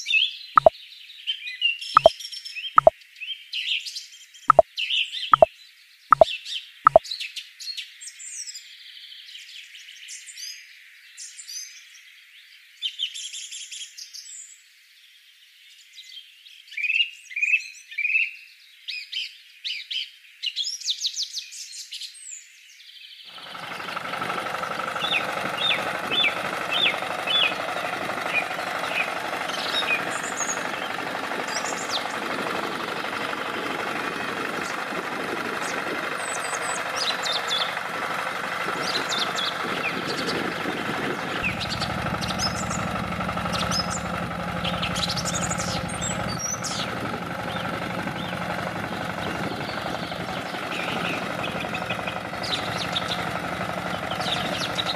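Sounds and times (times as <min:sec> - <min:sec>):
birds chirping: 0:23.3 - 0:54.9
engine-like drone: 0:23.3 - 0:54.9
deep rumble: 0:29.8 - 0:54.9.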